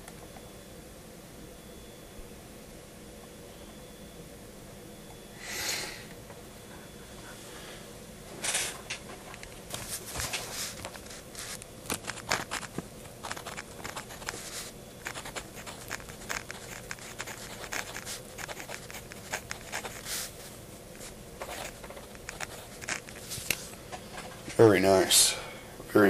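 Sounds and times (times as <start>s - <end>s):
pencil scratching on paper: 12.1s - 20.3s, 21.4s - 23.1s.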